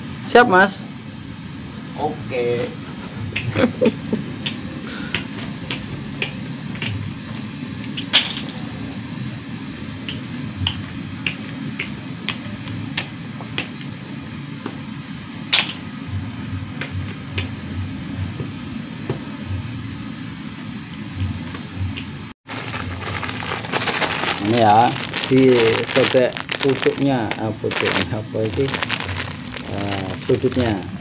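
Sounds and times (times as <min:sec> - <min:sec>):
steady low hum: 0:00.0 - 0:31.0
plastic bags clicking and tapping: 0:22.5 - 0:30.9.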